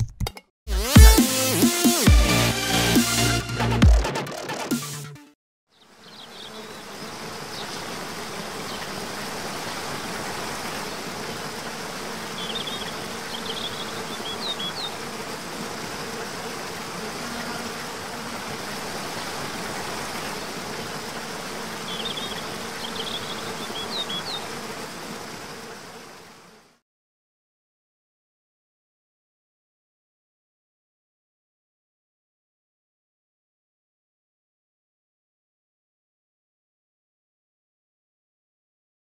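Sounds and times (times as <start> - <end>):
insects buzzing: 5.7 - 26.8.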